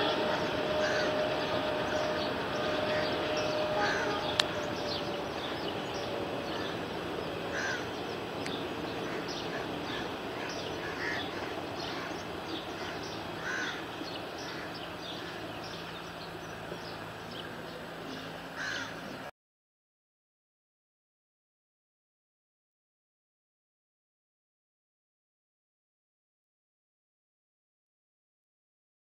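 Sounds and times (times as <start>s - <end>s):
passing train rumble: 0.0s - 19.3s
crows cawing: 0.1s - 1.5s, 2.9s - 4.7s, 6.4s - 6.8s, 7.5s - 8.0s, 9.0s - 15.6s, 18.6s - 19.0s.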